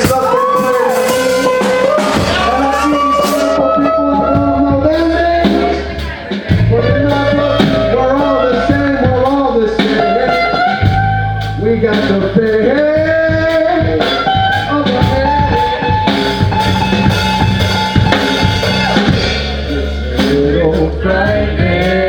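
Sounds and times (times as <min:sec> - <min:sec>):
drum hits: 0:00.0 - 0:03.6, 0:13.0 - 0:20.5
sliding lead guitar line: 0:00.0 - 0:21.9
live rock band playing: 0:00.0 - 0:22.0.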